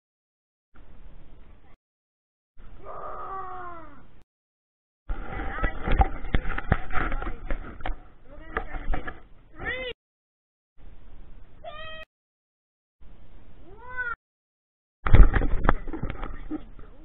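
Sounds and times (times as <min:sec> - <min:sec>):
meow-like calls: 0:11.6 - 0:12.1.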